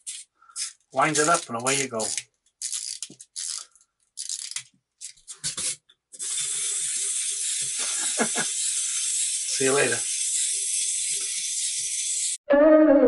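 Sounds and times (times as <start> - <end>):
wind-up toy key turning: 0.0 - 4.6, 6.2 - 12.4
clockwork motor whirring: 6.2 - 12.4.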